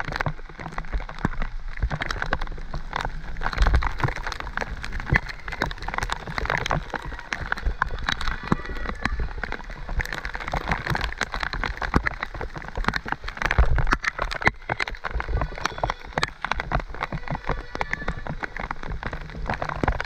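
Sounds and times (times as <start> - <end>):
heavy rain hitting a camera: 0.0 - 20.0.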